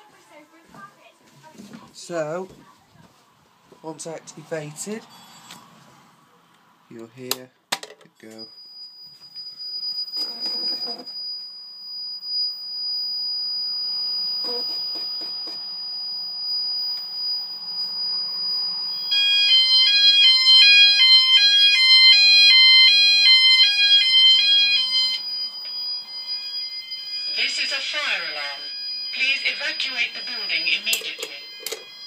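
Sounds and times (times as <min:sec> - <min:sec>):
steady high-pitched tone: 0:08.4 - 0:32.0
electronic alarm stepping pitches: 0:16.6 - 0:32.0.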